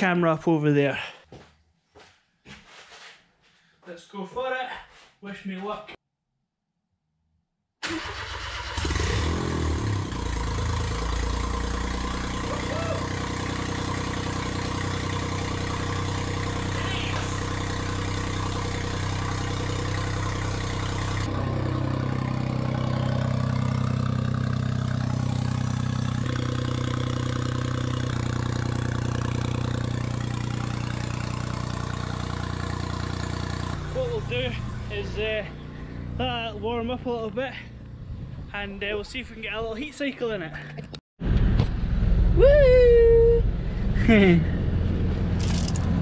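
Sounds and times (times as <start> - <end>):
car engine starting and idling: 7.8 - 36.2, 41.2 - 46.0.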